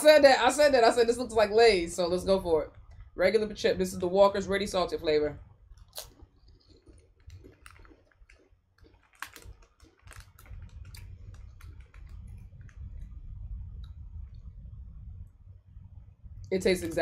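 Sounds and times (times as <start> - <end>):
low rumble: 0.0 - 5.9, 9.2 - 17.0
potato crisp crunching: 5.8 - 12.3.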